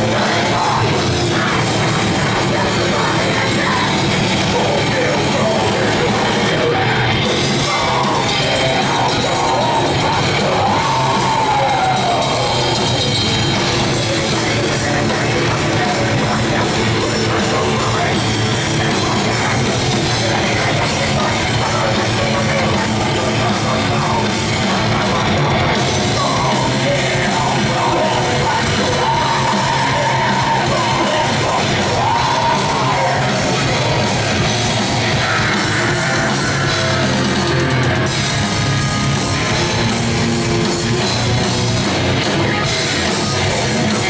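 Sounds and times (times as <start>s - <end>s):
vocalist yelling: 0.0s - 12.8s
death metal band playing: 0.0s - 44.0s
distorted guitars: 0.0s - 44.0s
rapid drumming: 0.0s - 44.0s.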